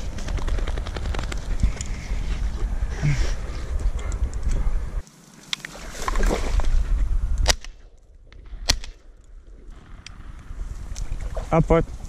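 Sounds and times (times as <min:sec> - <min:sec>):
shotgun shots: 0:08.4 - 0:09.0.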